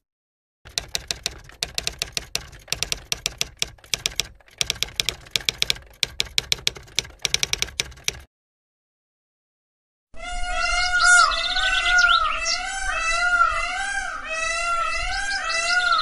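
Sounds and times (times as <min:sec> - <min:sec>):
typewriter key clicks: 0:00.7 - 0:08.3.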